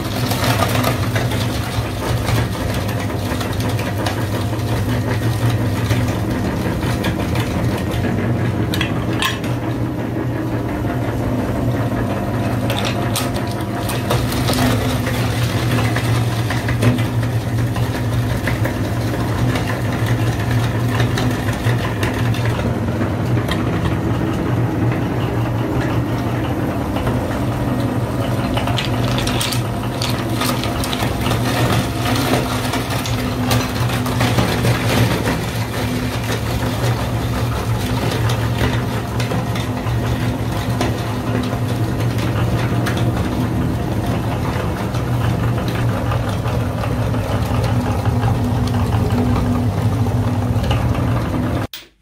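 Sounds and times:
meat grinder motor humming: 0.0 - 51.9
hard candy crunching: 28.4 - 39.5.

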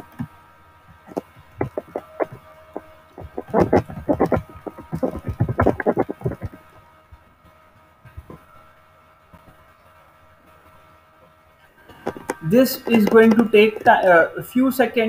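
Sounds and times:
faint steady hum: 0.0 - 15.0
computer keyboard typing: 1.1 - 2.4, 3.2 - 6.6.

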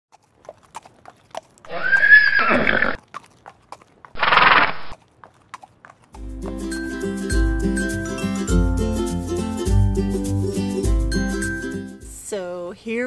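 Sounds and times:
hoof clops: 0.1 - 6.6
horse whinnying: 1.6 - 3.0, 4.2 - 5.0
music: 6.2 - 12.4.

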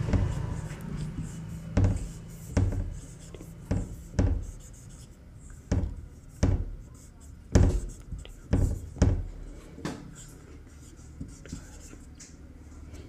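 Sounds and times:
marker tip tapping board: 0.0 - 4.7
marker squeaking on whiteboard: 0.0 - 9.3, 10.0 - 12.4
steady low hum: 0.0 - 13.0.

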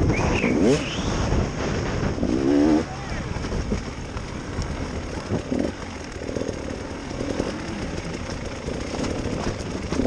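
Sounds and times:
motorcycle engine revving: 0.0 - 10.0
rumble: 0.0 - 10.0
wind noise: 0.0 - 10.0.

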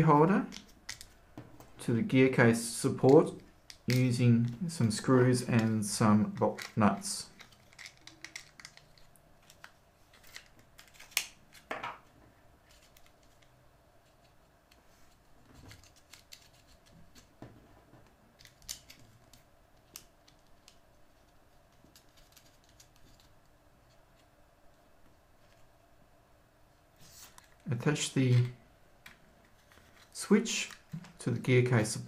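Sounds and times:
plastic parts clicking: 5.5 - 11.7, 18.4 - 20.8.

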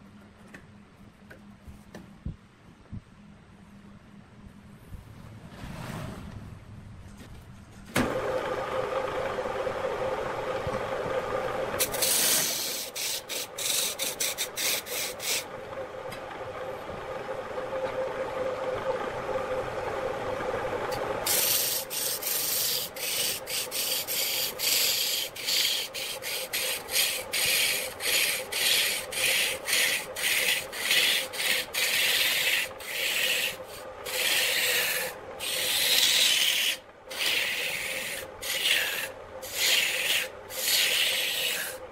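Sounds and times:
lathe motor hum: 8.0 - 41.9
turning tool scraping wood: 11.7 - 15.6, 20.8 - 41.9.

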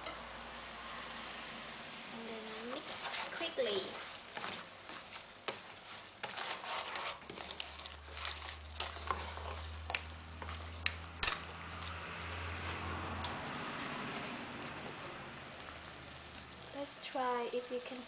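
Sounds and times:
light sizzle: 0.0 - 18.0
spatula scraping a pot: 2.4 - 13.0.

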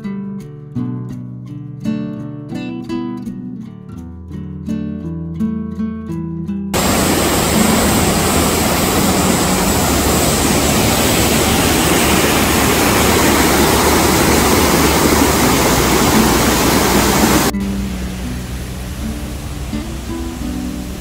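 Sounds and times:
waterfall roaring: 6.8 - 21.0.

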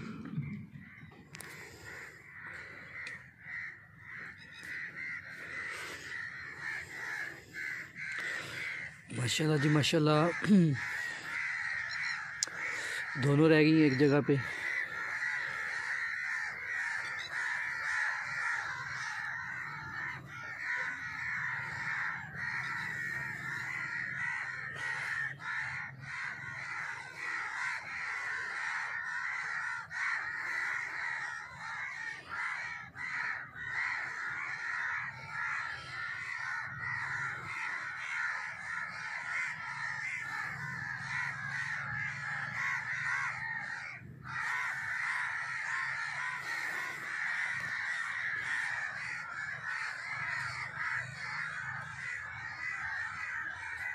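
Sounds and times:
chorus of birds calling: 0.0 - 53.9.

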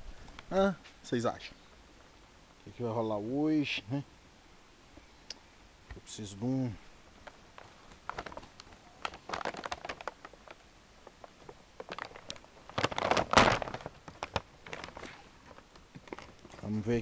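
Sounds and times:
crackling rustling handling noise: 5.9 - 17.0.

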